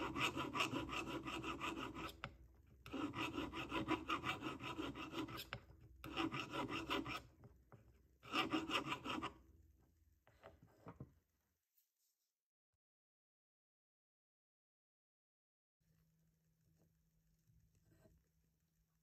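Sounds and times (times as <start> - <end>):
file rasping on metal: 0.0 - 2.3, 2.9 - 7.3, 8.2 - 9.4.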